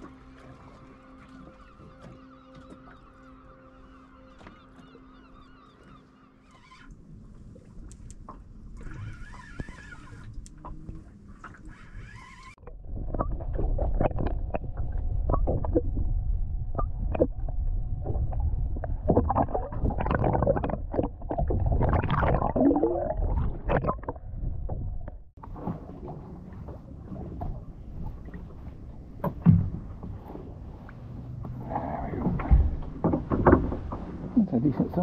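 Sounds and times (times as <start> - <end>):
underwater rumble and gurgling: 0.0 - 6.2, 6.9 - 35.0
underwater knocks and clicks: 12.6 - 16.1, 18.1 - 22.6, 32.2 - 34.3.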